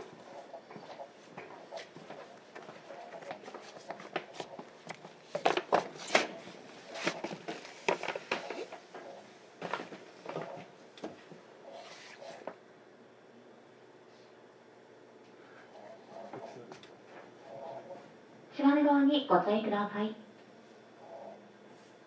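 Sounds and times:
footsteps in train carriage: 0:00.0 - 0:06.6, 0:07.2 - 0:11.4.

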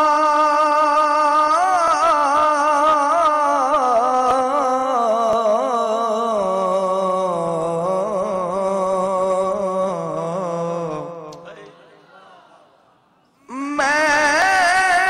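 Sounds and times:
man singing long note: 0:13.4 - 0:15.0.

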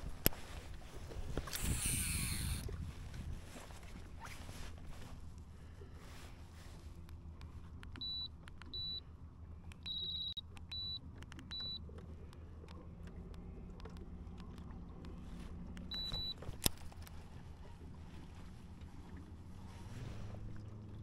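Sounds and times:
steady low hum: 0:00.0 - 0:21.0
short electronic beeps: 0:08.0 - 0:09.0, 0:09.8 - 0:11.8, 0:15.9 - 0:16.4.

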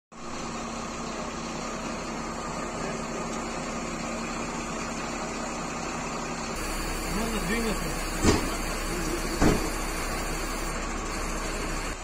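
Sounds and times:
mechanical hum: 0:06.6 - 0:12.0.

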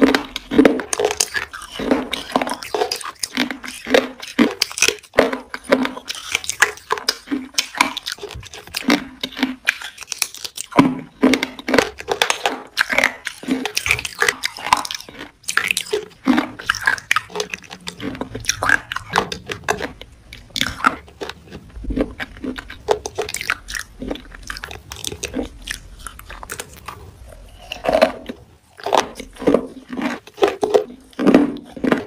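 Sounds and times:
mouth chewing crunchy food: 0:00.0 - 0:32.0.

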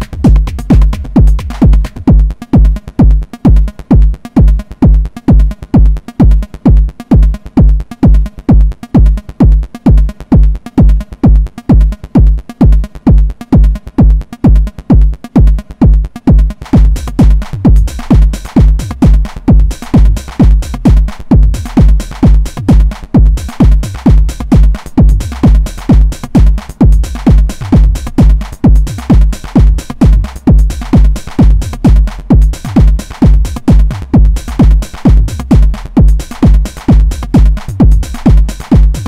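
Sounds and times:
pulsing bass line: 0:00.0 - 0:39.0
techno kick drum: 0:00.0 - 0:39.0.

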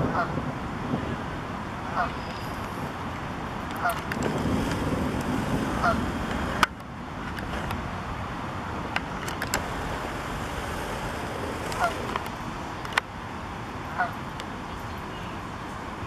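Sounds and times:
wind on microphone: 0:00.0 - 0:16.0
goose honk: 0:05.8 - 0:06.0, 0:11.8 - 0:12.0.

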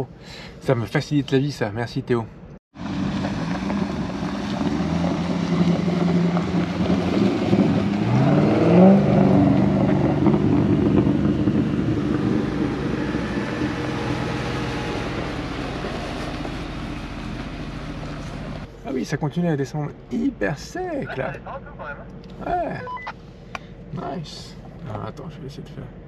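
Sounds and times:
engines running in low gear: 0:00.0 - 0:26.0
engine revving: 0:02.8 - 0:18.8.

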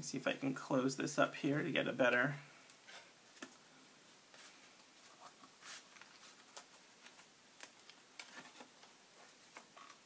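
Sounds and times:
paper rustling: 0:04.3 - 0:10.0.

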